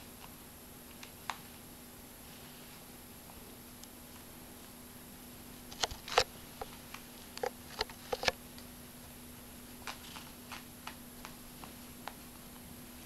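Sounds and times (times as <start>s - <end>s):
cat claws on toy and carpet: 9.8s - 12.2s.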